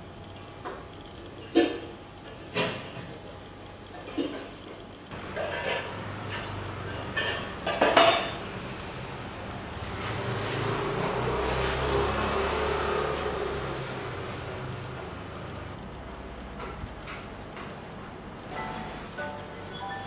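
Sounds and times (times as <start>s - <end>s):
metal pots clinking and clanking: 5.2s - 8.4s.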